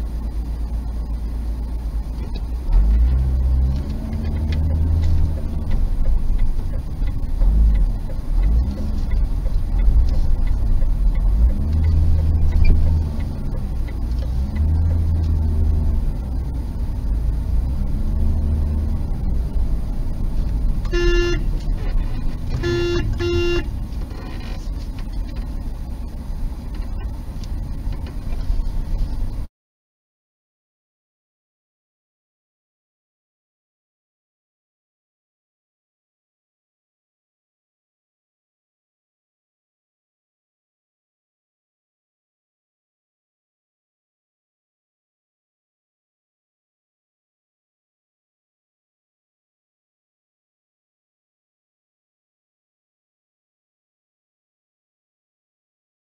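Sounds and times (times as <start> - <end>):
car engine and road rumble: 0.0 - 29.5
car horn toots: 20.8 - 24.6.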